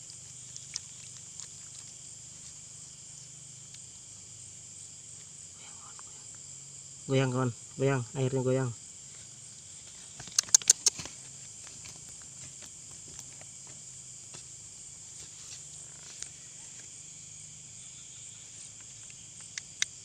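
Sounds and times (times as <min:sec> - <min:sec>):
crickets trilling: 0:00.0 - 0:20.0
sharp clicks: 0:10.2 - 0:11.1.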